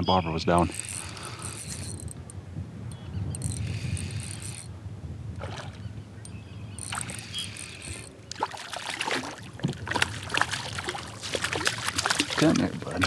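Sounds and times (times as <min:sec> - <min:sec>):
fishing reel cranking: 0:00.6 - 0:02.2, 0:03.3 - 0:04.7, 0:06.8 - 0:08.1
fish thrashing and splashing: 0:08.3 - 0:13.0.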